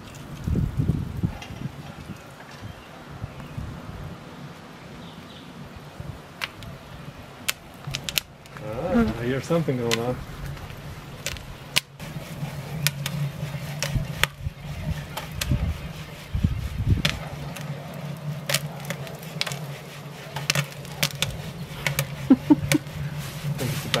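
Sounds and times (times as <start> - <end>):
popcorn popping: 6.4 - 6.8, 7.4 - 24.0.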